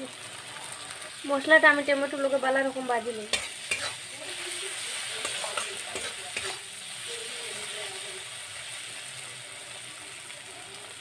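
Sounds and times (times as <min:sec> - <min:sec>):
masala sizzling in a pan: 0:00.0 - 0:11.0
spatula scraping a metal pan: 0:03.3 - 0:06.7.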